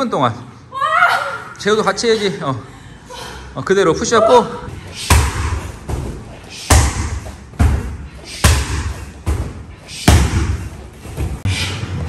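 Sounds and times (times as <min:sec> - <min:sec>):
kicks thudding on punching bags: 0:05.1 - 0:11.4.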